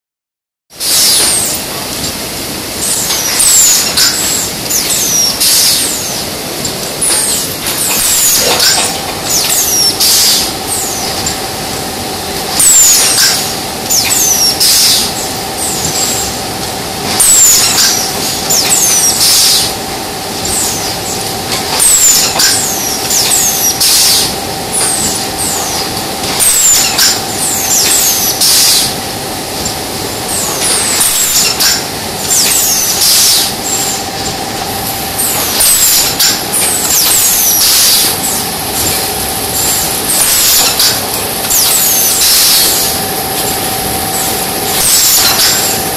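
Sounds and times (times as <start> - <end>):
steady machine hum: 0.8 - 45.9
pneumatic air hiss: 17.2 - 19.7.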